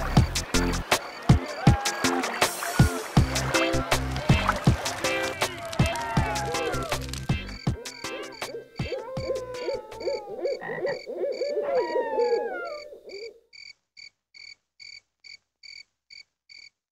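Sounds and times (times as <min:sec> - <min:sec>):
crickets chirping: 0:00.0 - 0:03.8, 0:06.3 - 0:16.7
frog calling: 0:04.4 - 0:13.7.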